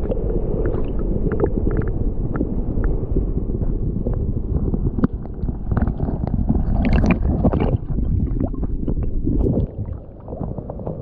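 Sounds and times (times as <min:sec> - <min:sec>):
water sloshing and gurgling: 0:00.0 - 0:11.0.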